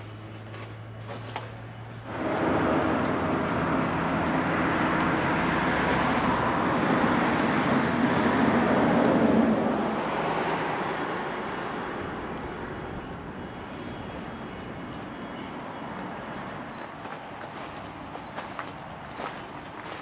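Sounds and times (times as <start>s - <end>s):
vehicle passing by: 0.0s - 20.0s
small birds chirping: 9.2s - 20.0s.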